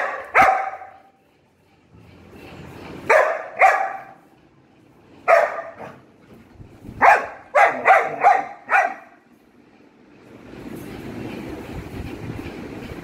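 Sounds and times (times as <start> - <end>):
puppy barking: 0.0 - 1.1, 3.1 - 4.3, 5.2 - 6.1, 6.9 - 9.2.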